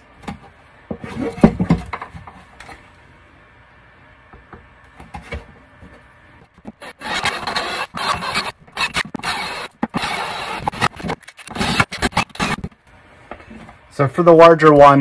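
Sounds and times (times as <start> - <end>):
cordless drill boring through plastic: 6.8 - 12.6.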